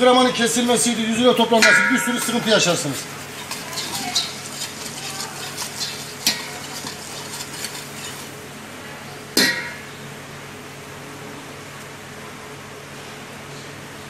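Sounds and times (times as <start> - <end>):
whisk scraping metal pot: 1.6 - 8.4
light sizzle: 1.6 - 10.2.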